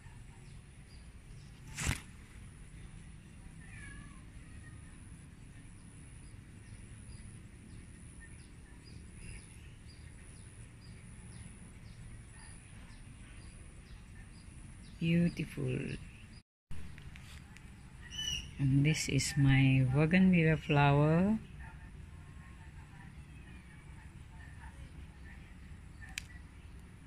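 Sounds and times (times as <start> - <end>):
small chirp: 0.0 - 18.6
cat meowing faintly: 3.5 - 4.8.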